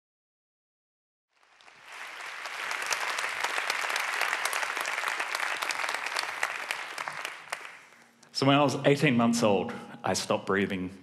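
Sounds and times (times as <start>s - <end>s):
audience applauding: 1.3s - 8.1s.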